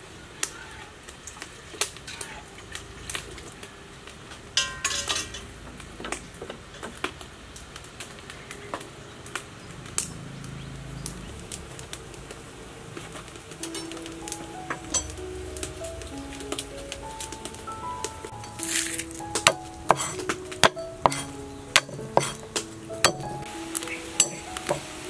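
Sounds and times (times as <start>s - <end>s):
oil sizzling faintly: 9.4s - 25.0s
ladle scraping steel wok: 18.4s - 23.4s, 24.2s - 24.9s.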